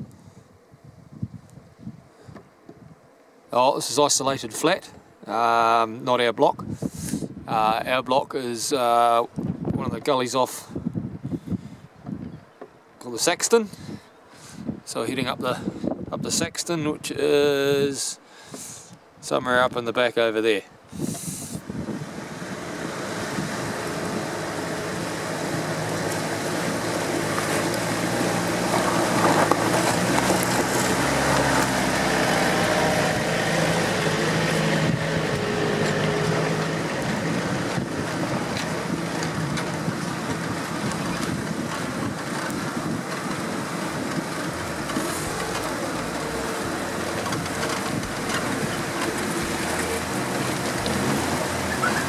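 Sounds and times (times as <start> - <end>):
wind noise on microphone: 0.0 - 3.1, 6.4 - 12.6, 13.6 - 19.7, 20.8 - 52.0
truck engines running: 21.0 - 52.0
water splashing around wheels: 21.1 - 52.0.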